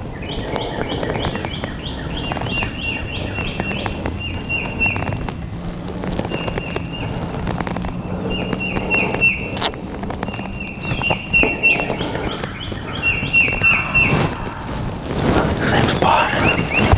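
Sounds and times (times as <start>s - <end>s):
crackling rustles: 0.0s - 16.9s
songbird singing high notes: 10.3s - 16.9s.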